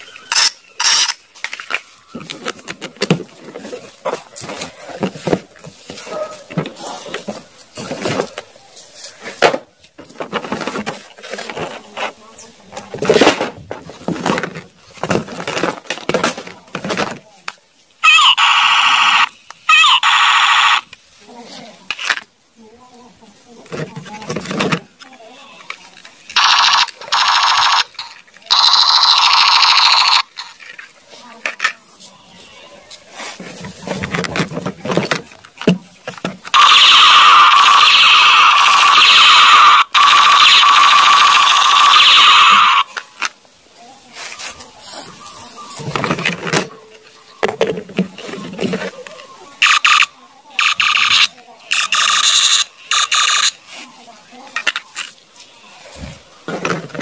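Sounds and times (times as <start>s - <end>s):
toy machine gun sound effect: 0.3s - 1.2s, 18.0s - 20.8s, 26.4s - 30.6s, 36.6s - 42.9s, 49.6s - 53.6s
toy packaging rustling and knocking: 1.3s - 18.2s, 23.6s - 31.8s, 33.2s - 36.7s, 45.6s - 49.3s, 56.0s - 57.0s
plastic toy guns rattling: 25.7s - 30.8s.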